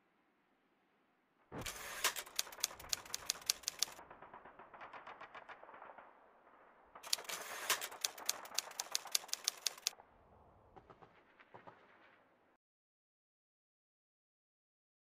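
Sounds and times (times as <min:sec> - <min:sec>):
typewriter key clicks: 0:02.0 - 0:04.0, 0:07.1 - 0:09.9.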